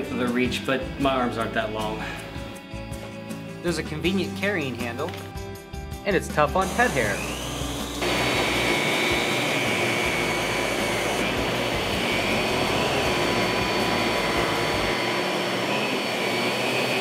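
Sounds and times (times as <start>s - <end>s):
vacuum cleaner running: 6.6s - 17.0s.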